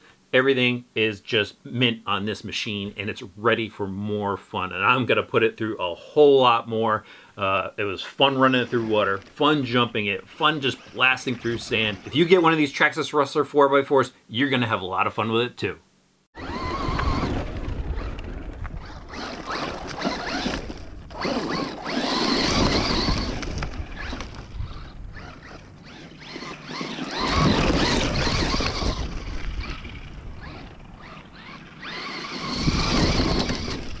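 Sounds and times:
electric motor whine: 16.4 - 34.0.

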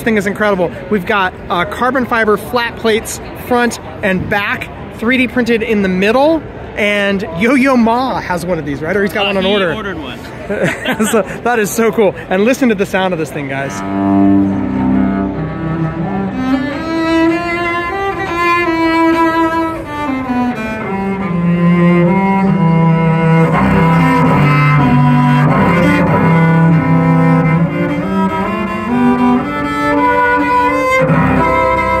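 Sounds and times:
bowed cello melody: 13.1 - 32.0.

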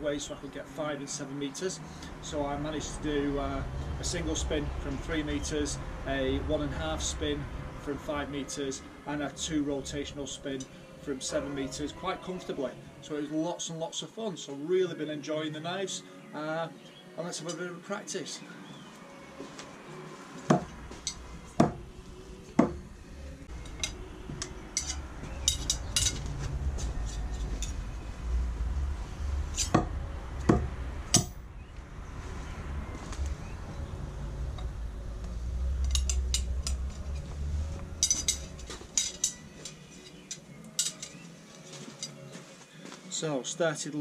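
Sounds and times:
low rumble: 20.7 - 39.0
metal blades clinking: 23.5 - 27.9, 29.5 - 29.9, 35.7 - 37.3, 37.9 - 42.3.

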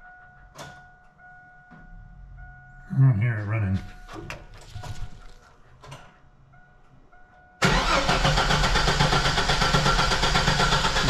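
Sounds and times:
engine cranked by starter: 7.6 - 11.0.

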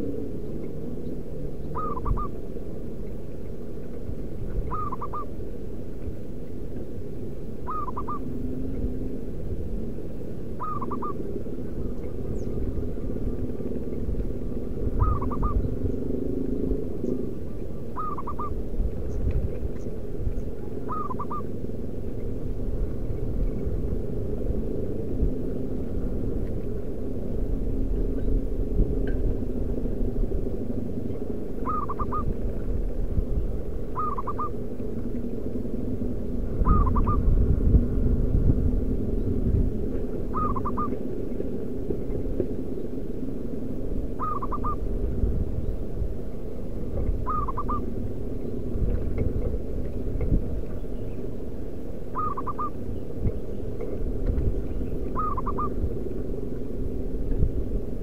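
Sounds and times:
dove cooing: 0.0 - 2.4, 4.5 - 5.3, 7.6 - 8.4, 10.6 - 12.8, 14.9 - 16.0, 16.6 - 18.6, 20.6 - 21.6, 31.6 - 32.5, 33.9 - 34.6, 36.6 - 37.3, 40.2 - 41.2, 44.2 - 44.9, 47.0 - 48.0, 52.1 - 53.0, 55.0 - 55.8
steady low rumble: 0.0 - 58.0.

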